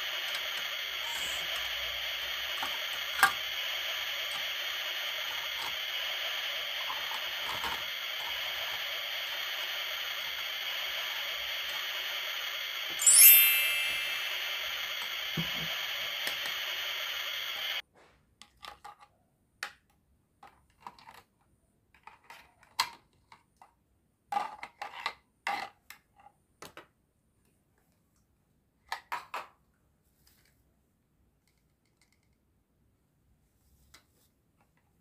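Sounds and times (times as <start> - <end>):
sizzling hiss: 0.0 - 17.8.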